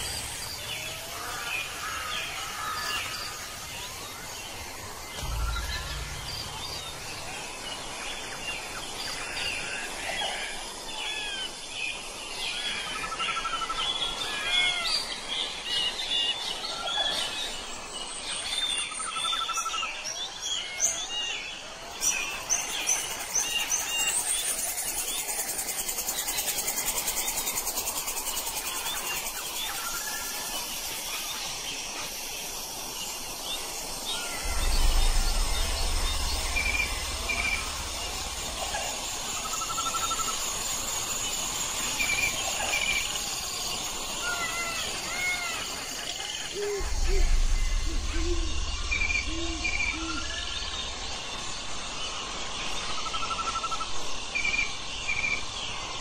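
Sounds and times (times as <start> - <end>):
high-pitched hiss: 0.0 - 11.2, 22.0 - 53.8
songbirds chirping: 0.0 - 56.0
low rumble: 4.1 - 8.9, 34.1 - 40.6, 46.8 - 51.8.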